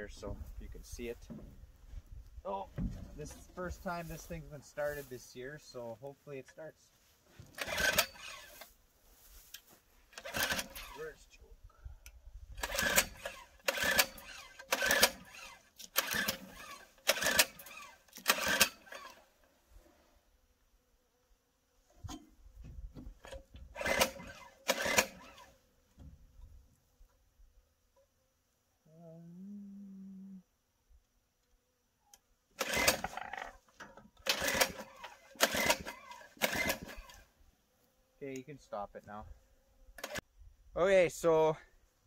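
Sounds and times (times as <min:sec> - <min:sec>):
recoil cord pulls cranking engine: 0:07.5 - 0:08.7, 0:10.1 - 0:11.1, 0:12.6 - 0:19.3, 0:23.2 - 0:25.5, 0:32.6 - 0:33.5, 0:34.2 - 0:37.2, 0:40.0 - 0:40.2.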